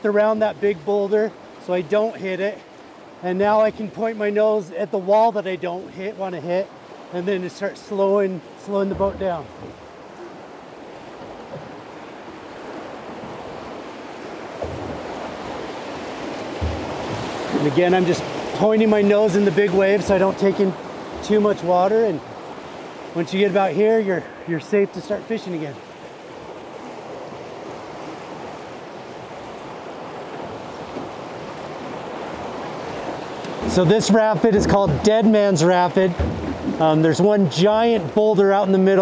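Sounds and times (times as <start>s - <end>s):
whitewater rushing: 0.0s - 39.0s
low thump: 8.8s - 9.8s, 14.6s - 15.1s, 16.4s - 17.8s, 33.5s - 35.2s, 36.1s - 37.0s.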